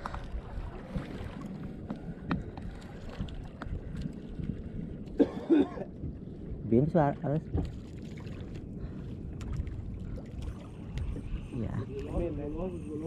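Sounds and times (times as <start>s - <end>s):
water lapping against canoe hull: 0.0s - 12.3s
wind on microphone: 0.0s - 13.0s.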